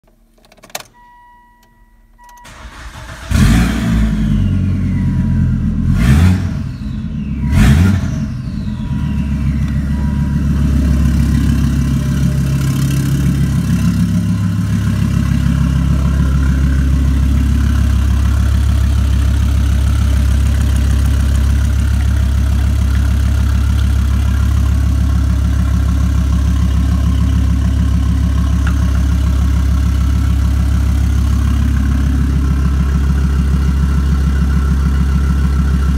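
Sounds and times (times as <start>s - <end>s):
car engine idling: 2.1s - 35.9s
car engine starting and revving: 2.4s - 35.9s
electronic tone: 4.2s - 18.9s.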